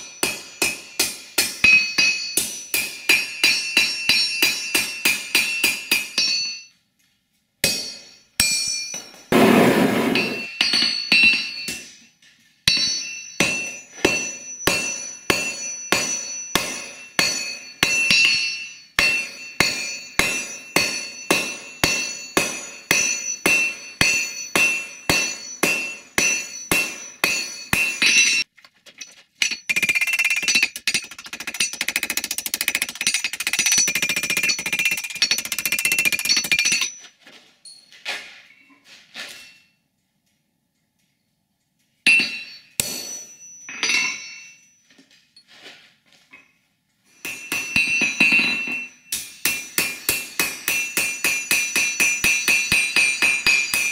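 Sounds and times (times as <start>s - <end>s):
hammer blows on ringing anvil: 12.7s - 28.5s, 47.1s - 53.9s.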